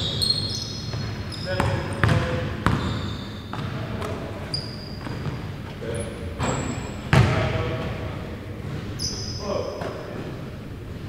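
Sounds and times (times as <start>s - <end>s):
sneakers squeaking on floor: 0.0s - 11.0s
basketball bouncing on hardwood: 0.9s - 2.9s, 7.1s - 7.6s.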